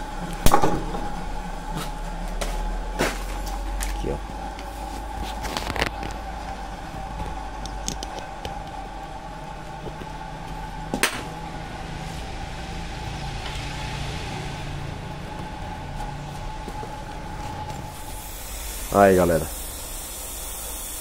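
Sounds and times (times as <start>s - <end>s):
lower hum: 0.0s - 21.0s
machine humming: 0.0s - 21.0s.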